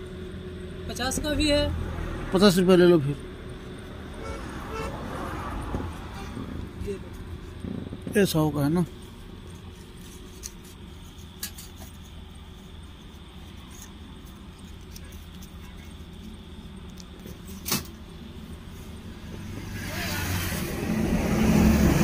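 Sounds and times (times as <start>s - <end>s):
vehicle approaching: 0.0s - 10.8s, 16.2s - 22.0s
road traffic rumble: 0.0s - 22.0s.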